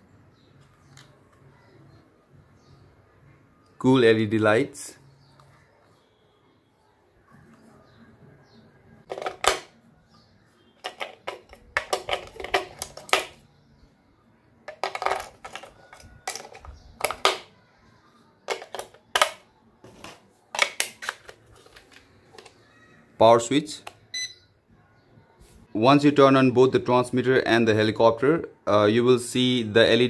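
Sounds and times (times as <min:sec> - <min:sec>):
batteries clinking and clicking: 0:09.1 - 0:09.7, 0:10.8 - 0:13.4, 0:14.7 - 0:17.5, 0:18.5 - 0:22.6.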